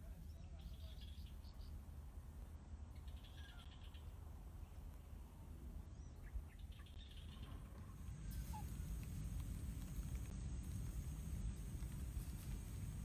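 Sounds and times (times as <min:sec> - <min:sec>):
faint bird chirps: 0:00.1 - 0:01.8, 0:02.9 - 0:05.2, 0:05.9 - 0:09.0
low steady rumble: 0:06.8 - 0:13.0.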